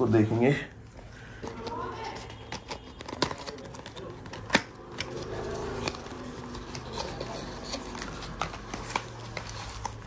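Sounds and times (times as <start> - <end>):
cardboard box rustling: 5.2 - 10.0.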